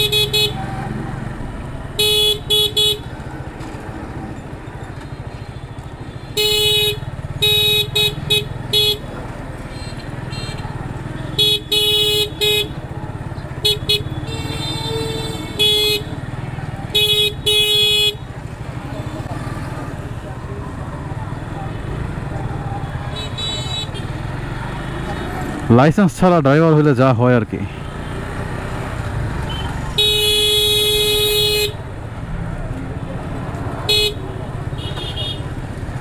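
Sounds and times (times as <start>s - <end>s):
longer vehicle horn: 0.0s - 0.8s, 1.9s - 3.2s, 5.8s - 9.1s, 9.7s - 12.8s, 13.6s - 16.2s, 16.9s - 19.2s, 22.9s - 24.2s, 29.4s - 31.8s, 33.9s - 35.6s
vehicle horn short beeps: 34.8s - 35.4s.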